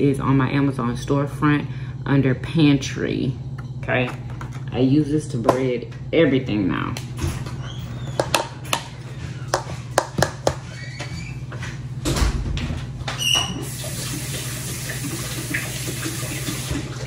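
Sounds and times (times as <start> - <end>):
steady low hum: 0.0 - 13.2
tap running water: 13.6 - 17.0.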